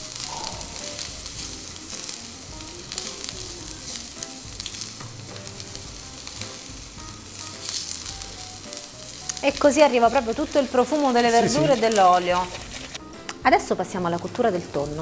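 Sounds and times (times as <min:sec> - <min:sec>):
vegetables sizzling in a frying pan: 0:00.0 - 0:15.0
spatula scraping a pan: 0:10.0 - 0:13.0.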